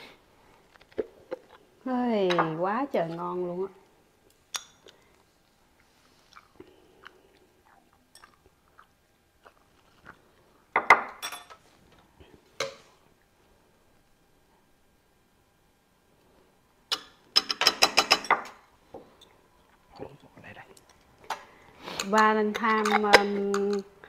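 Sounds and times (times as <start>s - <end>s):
soft chewing: 4.2s - 10.6s
utensils clinking on dishes: 11.2s - 11.6s, 16.9s - 18.5s, 22.0s - 23.8s
chopsticks clicking against bowls: 22.0s - 23.9s.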